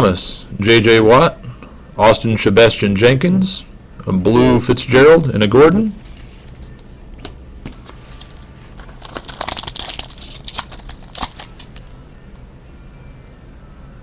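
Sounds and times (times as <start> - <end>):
foil wrapper crinkling and tearing: 8.2 - 12.0.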